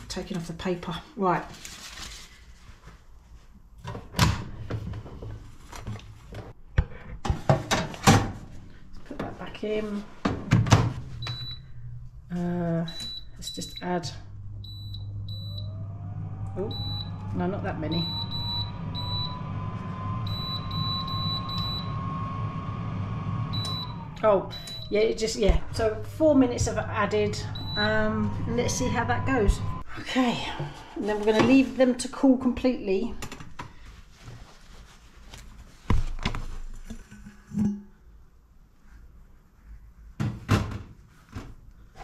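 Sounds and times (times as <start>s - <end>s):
oven fan hum and whine: 7.2s - 32.1s
short high-pitched beeps: 23.6s - 24.9s.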